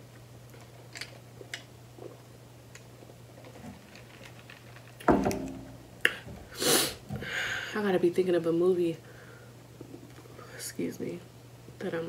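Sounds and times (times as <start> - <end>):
low steady hum: 0.0 - 12.0
loud thump: 5.1 - 5.8.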